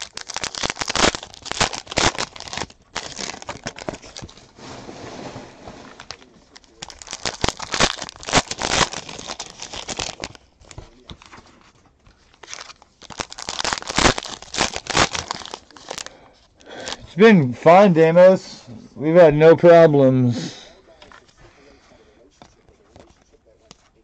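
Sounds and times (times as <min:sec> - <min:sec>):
foil wrappers crinkling and tearing: 0:00.0 - 0:04.6, 0:05.9 - 0:17.1.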